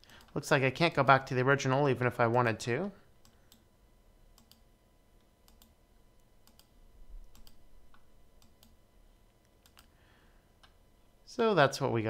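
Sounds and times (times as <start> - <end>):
computer mouse clicks: 4.4 - 4.6, 5.4 - 5.8, 6.4 - 8.8, 9.4 - 9.9.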